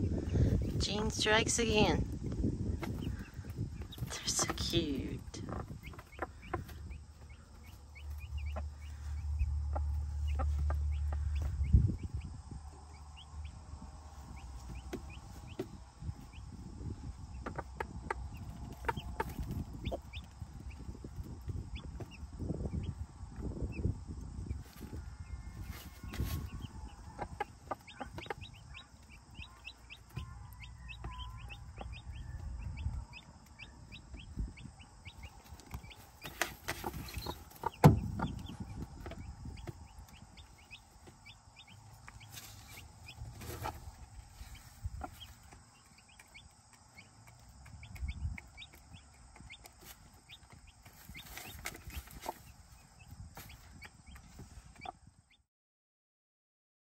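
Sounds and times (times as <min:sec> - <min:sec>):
chicks peeping: 0:00.0 - 0:55.4
hen clucking softly: 0:05.4 - 0:07.4, 0:17.3 - 0:20.2.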